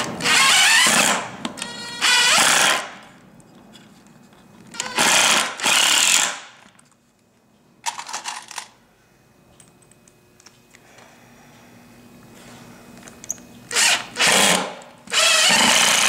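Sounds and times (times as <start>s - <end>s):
impact driver hammering screw: 4.8s - 6.5s, 13.7s - 16.0s.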